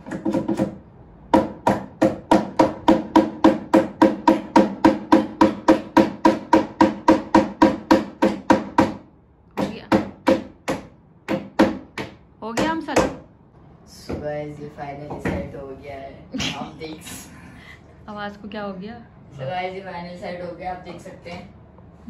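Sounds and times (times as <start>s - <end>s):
hammer striking a wall fixing: 0.0s - 13.3s.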